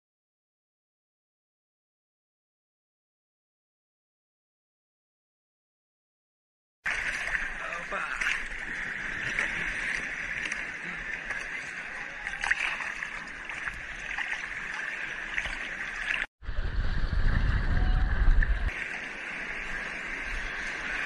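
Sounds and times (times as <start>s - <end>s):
sea water sloshing and splashing: 6.9s - 16.3s, 17.0s - 21.0s
water buffeting microphone: 6.9s - 21.0s.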